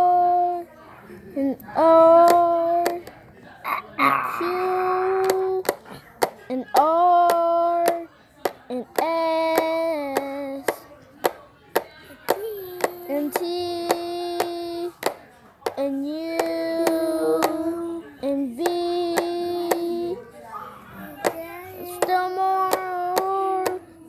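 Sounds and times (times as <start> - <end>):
child singing long notes: 16.1 - 20.2.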